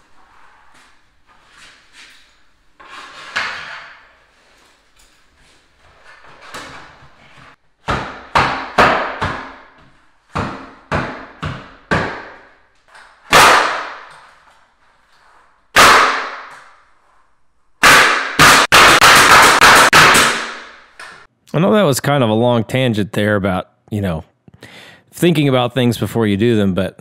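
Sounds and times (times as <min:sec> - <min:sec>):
hammer nailing boards: 0:07.8 - 0:14.4, 0:15.7 - 0:16.7, 0:17.8 - 0:21.3.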